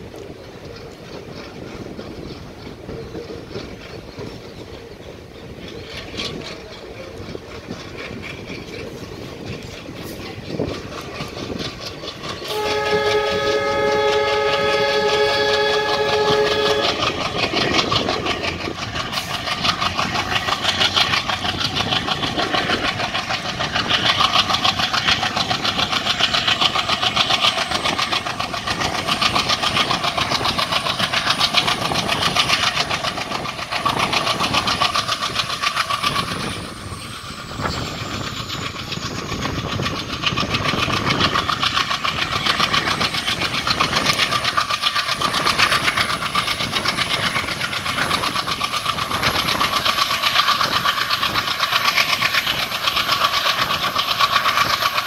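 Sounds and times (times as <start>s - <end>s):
locomotive engine chugging: 0.0s - 55.0s
wheel-on-rail clatter: 0.0s - 55.0s
locomotive horn blast: 12.5s - 17.2s.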